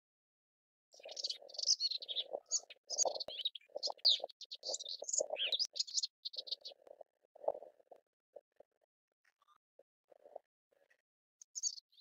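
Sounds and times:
warbler singing: 0.9s - 7.0s, 11.4s - 12.0s.

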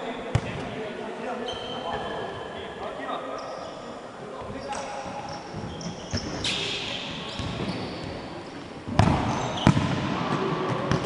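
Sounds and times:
sneakers squeaking: 1.4s - 11.0s
ball struck with thuds: 8.9s - 10.1s.

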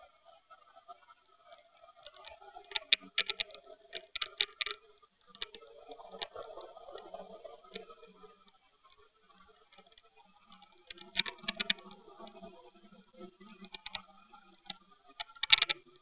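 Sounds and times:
light clicks and taps: 2.0s - 8.1s, 9.7s - 12.4s, 13.5s - 16.0s.

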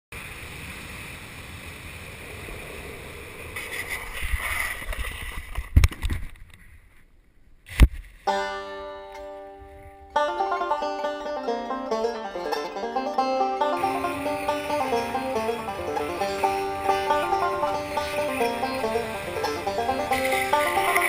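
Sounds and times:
steady rushing noise: 0.2s - 6.9s, 11.1s - 21.0s
plucked banjo music: 8.2s - 21.0s.

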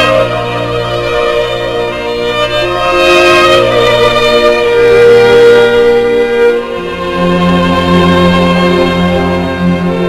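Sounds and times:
violin playing long held notes: 0.0s - 10.0s.

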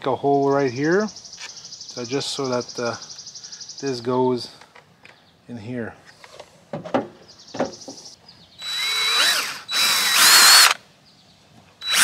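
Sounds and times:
cordless drill whining: 8.6s - 10.8s, 11.8s - 12.0s.

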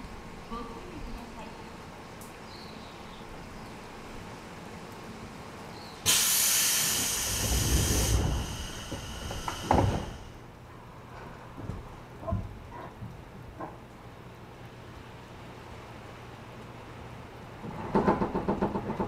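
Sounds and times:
low train rumble: 0.0s - 19.0s
compressed air hissing: 6.1s - 10.4s
heavy door thud: 7.6s - 10.2s.

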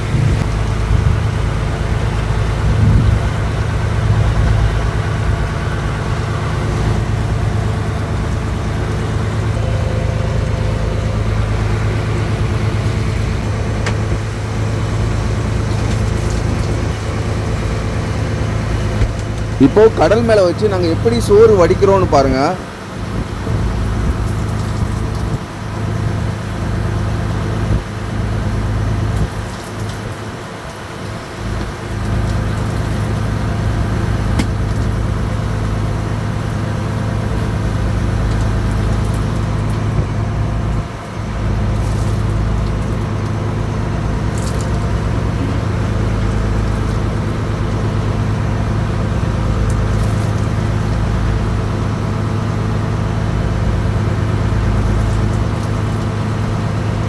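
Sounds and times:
boat engine droning: 0.0s - 57.0s.

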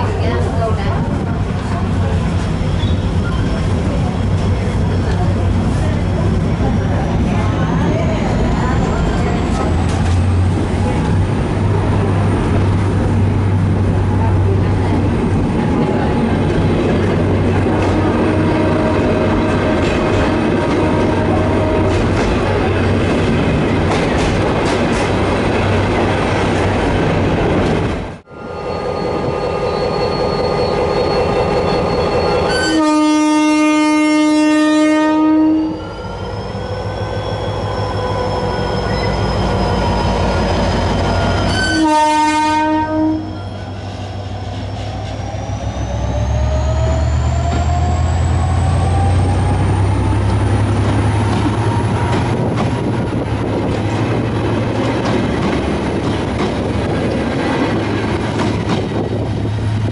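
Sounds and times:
train running noise: 0.0s - 59.9s
locomotive air horn: 17.9s - 22.1s, 32.5s - 35.8s, 41.5s - 43.4s.

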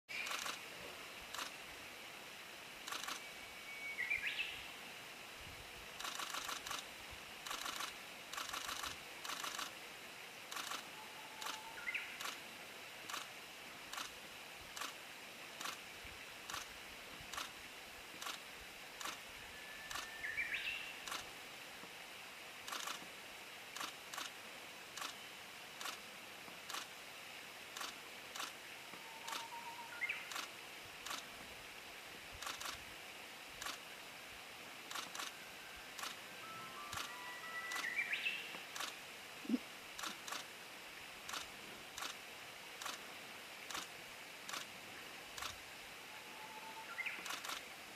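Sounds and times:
camera shutters firing: 7.5s - 9.7s, 10.5s - 10.8s, 11.4s - 11.6s, 22.7s - 23.0s, 30.3s - 31.3s, 34.9s - 35.3s, 47.2s - 47.6s
high bird calls: 11.2s - 12.3s, 36.4s - 38.5s.

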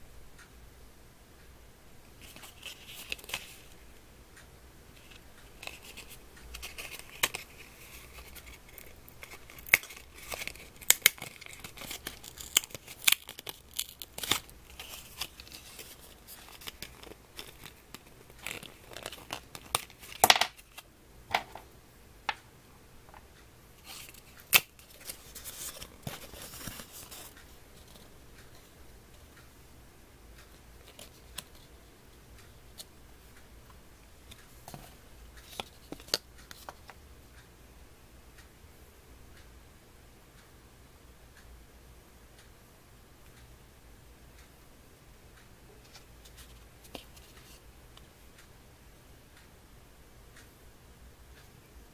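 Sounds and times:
paper rustling and crinkling: 2.2s - 3.7s, 5.0s - 20.8s, 23.8s - 28.0s
paper snaps and clicks: 5.6s - 20.8s.

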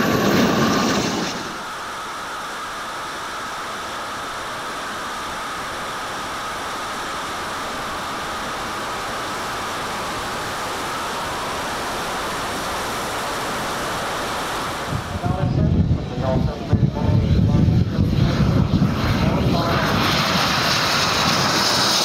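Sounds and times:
jet turbines rushing hiss: 0.0s - 22.0s.

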